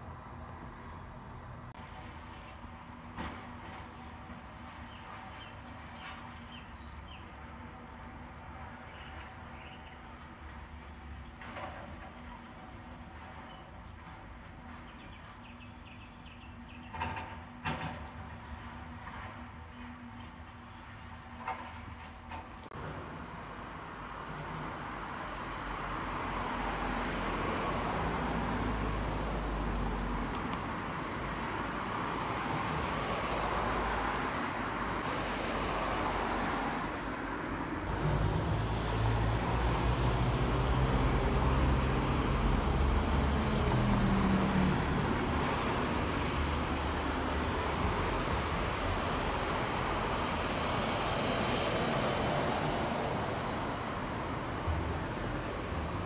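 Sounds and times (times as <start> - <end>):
road traffic hum: 0.0 - 56.0
heavy vehicle engine drone: 22.7 - 56.0.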